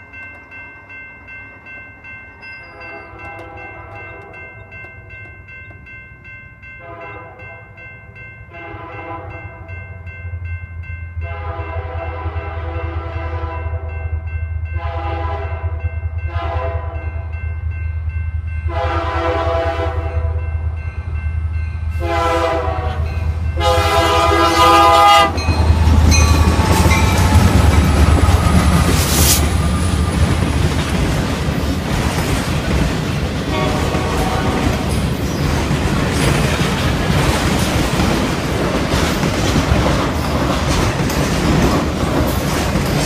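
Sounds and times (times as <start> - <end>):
train air horn blasts: 2.7 - 4.5, 6.8 - 7.7, 8.5 - 9.7, 11.2 - 13.9, 14.8 - 17.2, 18.7 - 20.5, 22.0 - 30.4, 33.5 - 35.0
locomotive engine noise: 23.3 - 41.0.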